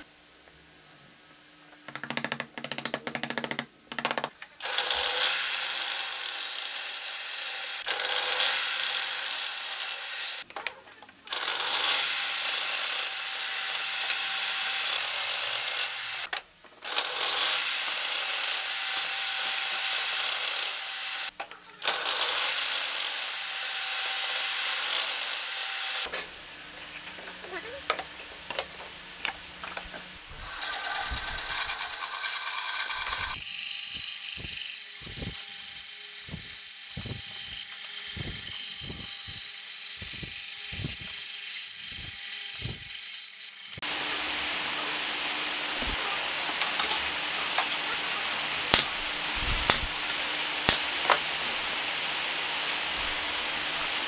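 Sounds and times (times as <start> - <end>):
table saw ripping wooden boards: 11.3 - 26.3, 29.5 - 35.4, 48.6 - 53.5
bandsaw hum: 11.3 - 43.0, 43.7 - 54.0.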